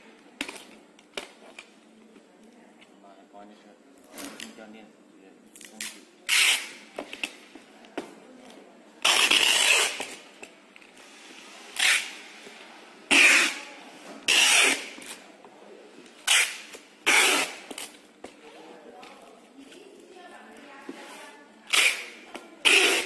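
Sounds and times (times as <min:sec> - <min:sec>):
packing tape ripping screech: 0:05.7 - 0:06.9, 0:09.0 - 0:10.2, 0:11.7 - 0:12.3, 0:13.1 - 0:15.2, 0:16.2 - 0:18.0, 0:21.7 - 0:23.0
tape dispenser clicks: 0:21.7 - 0:23.0.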